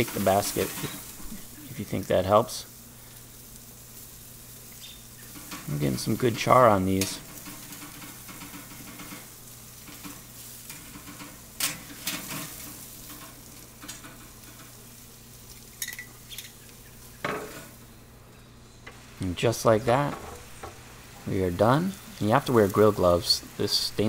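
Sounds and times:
vegetables sizzling over fire: 0.0s - 24.0s.

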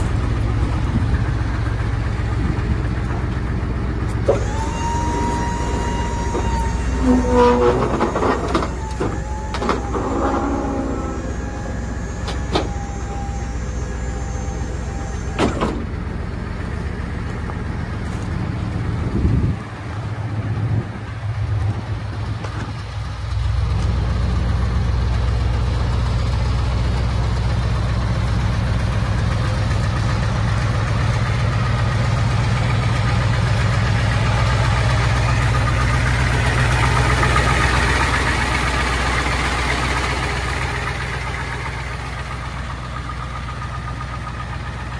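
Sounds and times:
diesel truck engine idling: 0.0s - 44.9s
squeaky metallic tones: 4.6s - 15.7s.

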